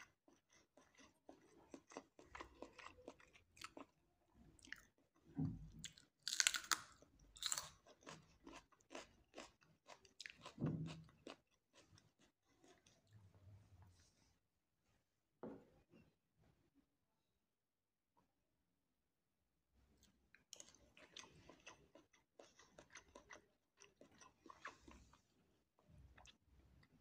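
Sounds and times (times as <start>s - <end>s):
chewing crunchy raw pepper: 0.0s - 4.0s, 5.8s - 13.1s, 20.3s - 25.2s.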